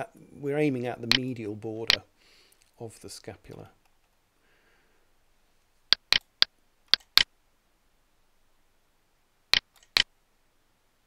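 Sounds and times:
mouse buttons clicking: 5.9s - 7.3s, 9.6s - 10.1s.

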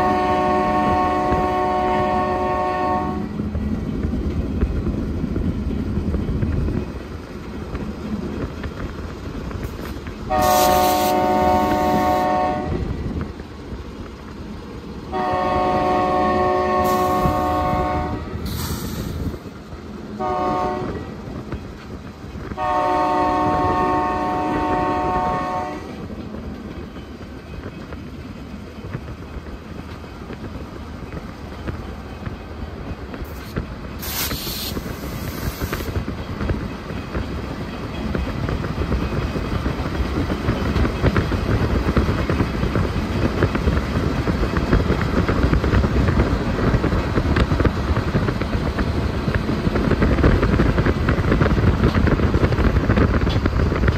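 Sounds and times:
locomotive air horn chord: 0.0s - 3.3s, 10.3s - 12.9s, 15.1s - 18.6s, 20.2s - 21.1s, 22.6s - 26.0s
moving train rumble: 0.0s - 53.9s
road noise: 0.0s - 53.9s.

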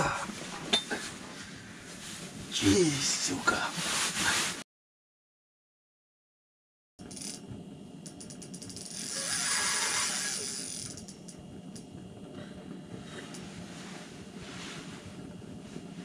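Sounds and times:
fishing reel ratcheting: 7.0s - 7.4s, 8.1s - 11.4s.

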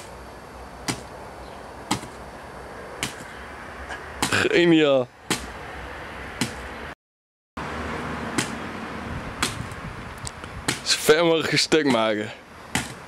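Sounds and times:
hammer striking papier-mache mold: 0.9s - 1.1s, 1.9s - 2.2s, 3.0s - 3.3s, 5.3s - 5.5s, 6.4s - 6.6s, 8.4s - 8.6s, 10.7s - 11.0s, 12.7s - 13.0s.

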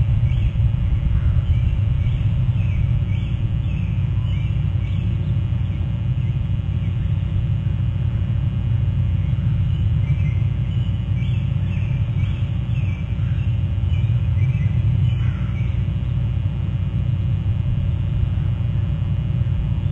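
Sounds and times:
low rumble: 0.0s - 19.9s
birds piping whistles: 0.2s - 7.0s, 9.1s - 15.9s.

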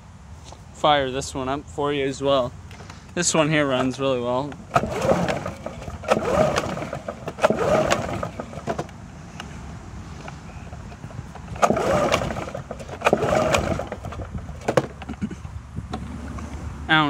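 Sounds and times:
pull starter cranking whirr: 3.7s - 9.0s, 10.2s - 15.1s.

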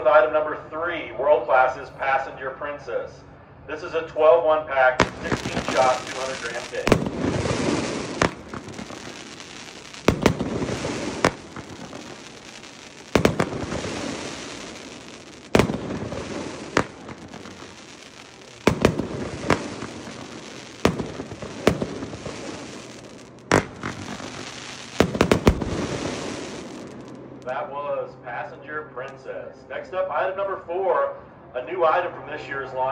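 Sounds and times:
firework hiss and crackle: 5.0s - 27.6s
firework shots: 5.0s - 27.6s.

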